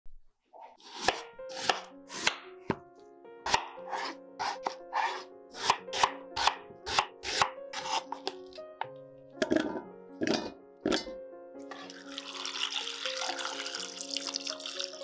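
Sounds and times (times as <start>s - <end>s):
soft background music: 0.6s - 15.0s
knife chopping on wooden board: 0.8s - 2.8s, 3.4s - 8.4s.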